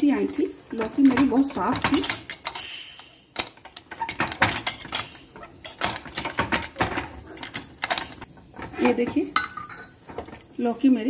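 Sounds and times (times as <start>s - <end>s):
metal lid clicks and clinks: 0.7s - 8.3s, 9.4s - 9.9s.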